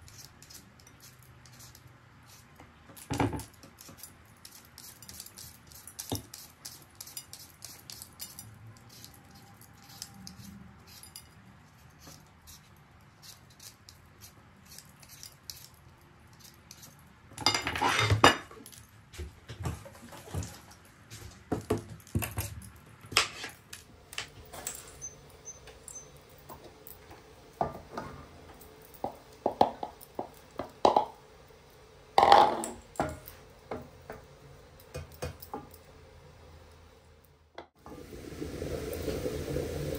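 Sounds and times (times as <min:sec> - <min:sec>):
peeler scraping potato: 0:00.0 - 0:17.1, 0:24.6 - 0:26.2
dishes and utensils clattering: 0:17.4 - 0:18.7, 0:32.2 - 0:33.8.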